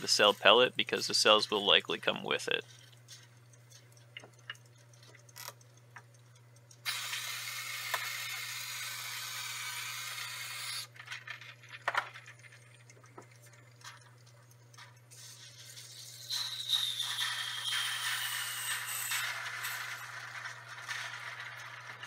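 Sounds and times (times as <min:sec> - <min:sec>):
vacuum aspirator hissing: 0:06.9 - 0:10.9, 0:15.2 - 0:20.6.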